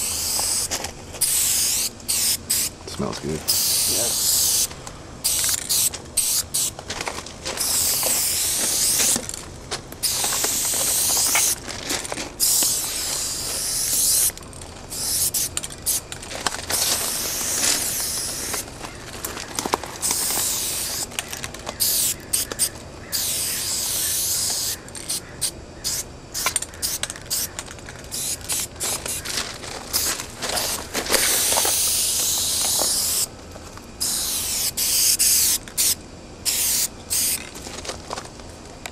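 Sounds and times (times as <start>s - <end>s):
spray-paint can hissing: 0.0s - 2.8s, 3.5s - 6.8s, 7.6s - 9.2s, 10.0s - 11.6s, 12.4s - 16.0s, 16.8s - 18.7s, 20.0s - 21.1s, 21.8s - 29.2s, 29.9s - 33.3s, 34.0s - 37.4s.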